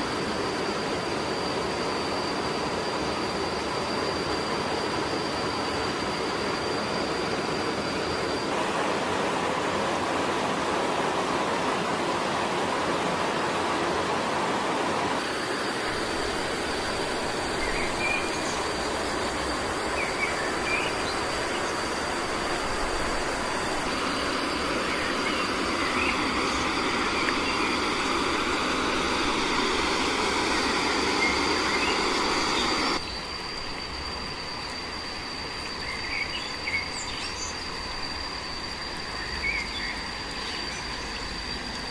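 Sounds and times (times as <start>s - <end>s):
high insect drone: 0.0s - 41.9s
bird chirps: 24.0s - 28.2s.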